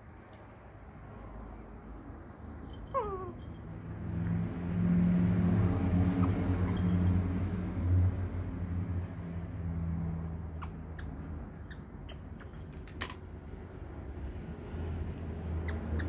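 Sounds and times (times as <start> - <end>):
baby monkey squeak: 10.5 - 12.8, 15.5 - 16.0.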